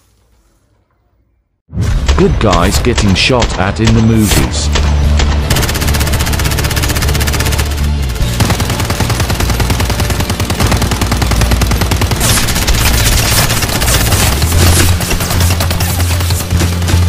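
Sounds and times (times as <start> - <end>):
machine-gun fire: 4.7 - 17.0.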